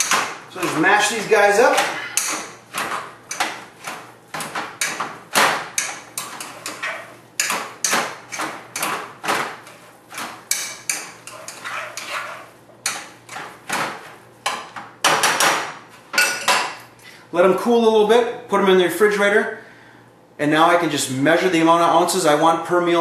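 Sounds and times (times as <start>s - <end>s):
masher knocking and scraping pot: 0.0s - 15.6s.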